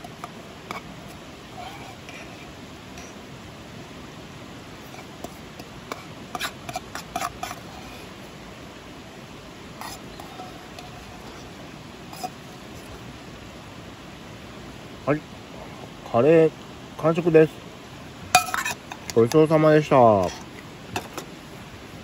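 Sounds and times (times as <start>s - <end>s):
river rushing: 0.0s - 22.0s
metal spoon clinking on steel bowl: 18.4s - 19.2s.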